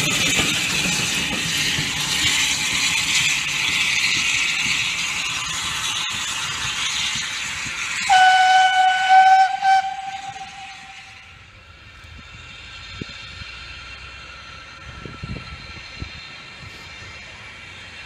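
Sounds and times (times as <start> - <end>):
steam hissing: 0.0 - 18.0
steam locomotive running: 0.0 - 18.0
steam whistle: 8.1 - 11.3.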